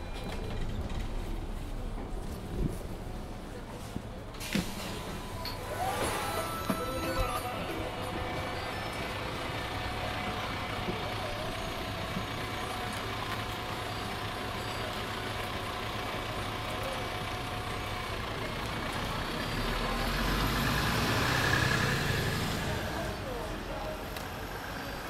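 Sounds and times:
bus engine idling: 0.0s - 25.0s.

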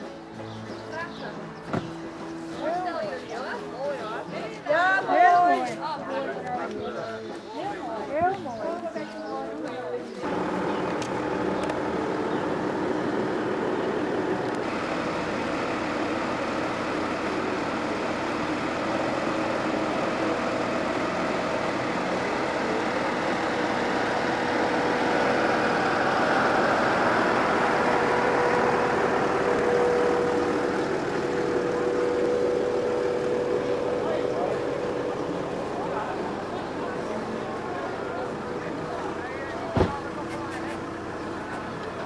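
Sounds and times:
car engine hum: 10.2s - 42.0s
tyre and road noise: 10.2s - 42.0s.

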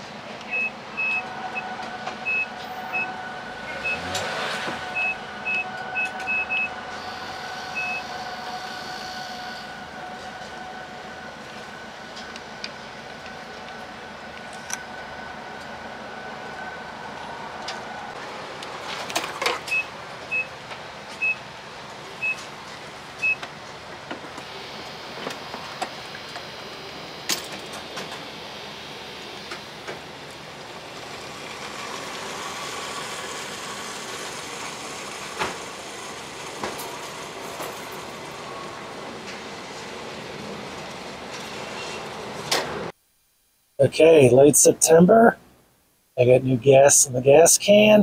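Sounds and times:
steady background hum: 0.0s - 48.0s
gas pump beeping: 0.4s - 4.2s, 4.9s - 8.4s, 19.5s - 20.6s, 21.2s - 21.4s, 22.2s - 22.5s, 23.2s - 23.5s.

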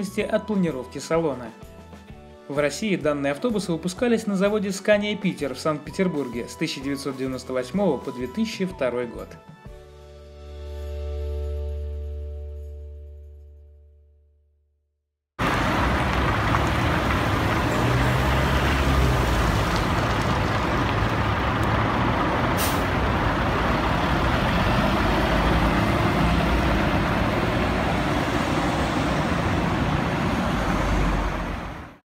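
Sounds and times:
bus diesel engine: 15.4s - 32.0s
compressed air hiss: 22.6s - 22.9s.

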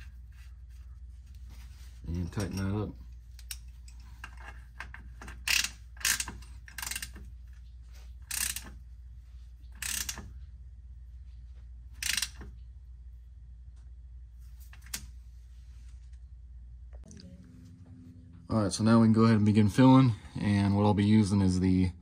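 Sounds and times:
hand ratchet clicking: 3.4s - 7.3s, 8.3s - 8.8s, 9.8s - 10.3s, 12.0s - 12.5s.

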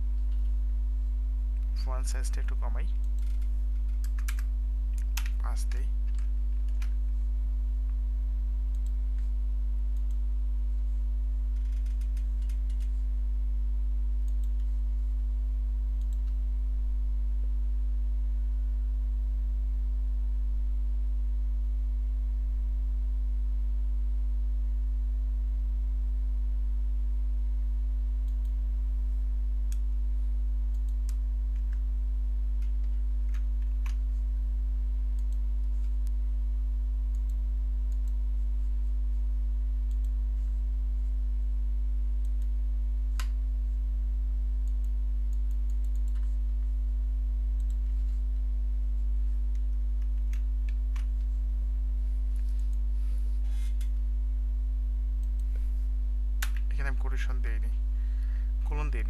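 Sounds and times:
low electrical hum: 0.0s - 59.0s
keyboard keystrokes and clicks: 3.0s - 7.0s, 11.6s - 12.9s.

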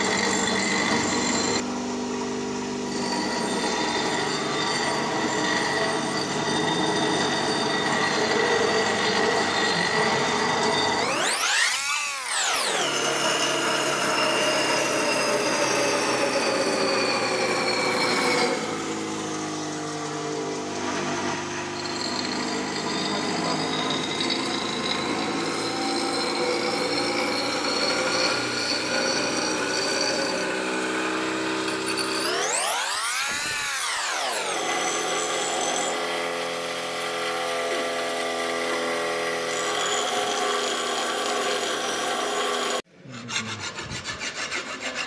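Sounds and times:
bench grinder grinding metal: 0.0s - 45.0s.

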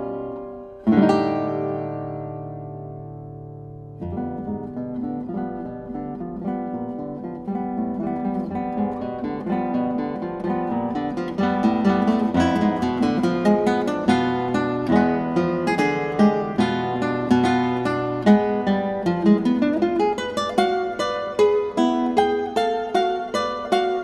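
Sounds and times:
acoustic guitar picking and strumming: 0.0s - 24.0s.

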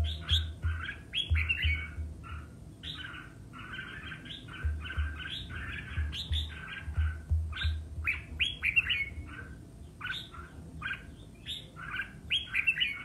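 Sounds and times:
bulbul chirping and warbling: 0.0s - 3.2s.

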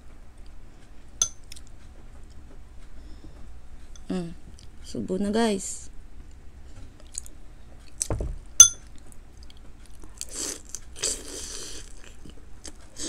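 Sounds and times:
sharp ringing clink: 8.6s - 8.9s.

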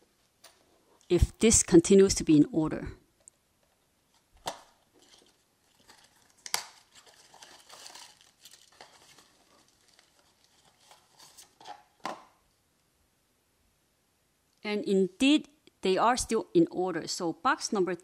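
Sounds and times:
cardboard and paper rustling: 4.0s - 12.2s.

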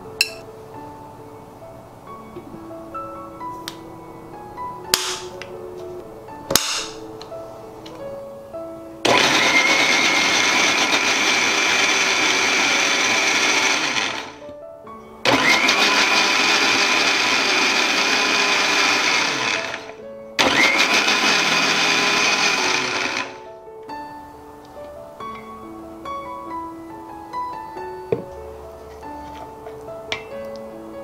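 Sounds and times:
mixer grinder whining: 9.0s - 14.4s, 15.2s - 23.4s.

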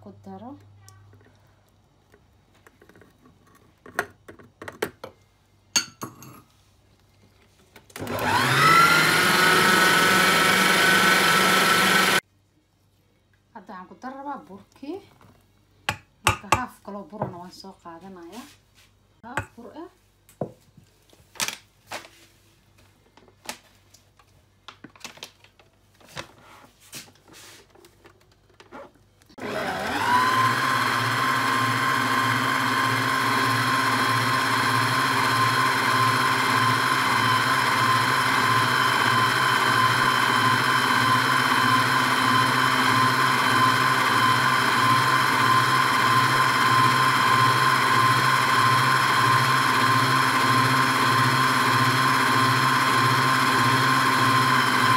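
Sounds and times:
stand mixer motor whine: 8.0s - 12.2s, 29.4s - 54.9s.

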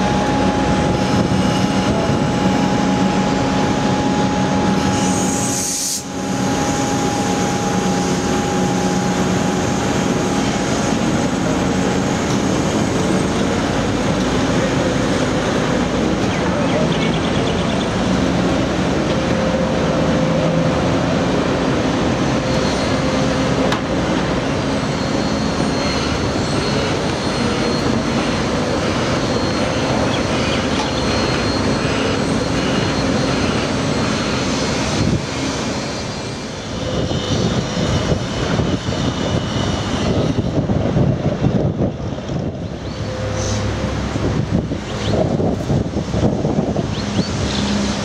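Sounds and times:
wind buffeting microphone: 0.0s - 5.0s, 32.8s - 48.0s
electric train running: 0.0s - 48.0s.

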